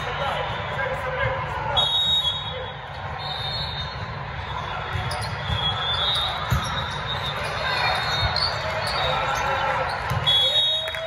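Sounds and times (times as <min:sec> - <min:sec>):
crowd chatter: 0:00.0 - 0:11.0
sneakers squeaking on court: 0:03.6 - 0:10.3.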